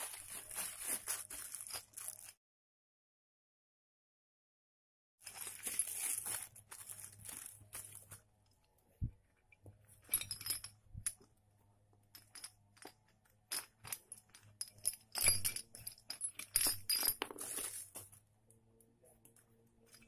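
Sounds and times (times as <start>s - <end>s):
plastic wrapping rustling and crinkling: 0.0s - 2.4s, 5.2s - 8.3s, 17.2s - 18.2s
metal rods clinking together: 12.2s - 17.9s.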